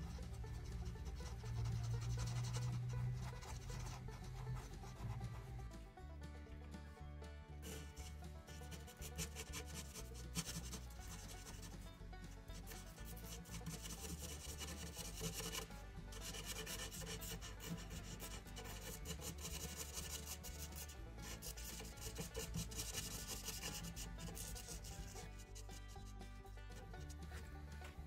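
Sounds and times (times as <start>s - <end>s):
marker scratching on paper: 1.2s - 5.4s, 7.6s - 8.0s, 8.6s - 11.6s, 12.6s - 25.9s.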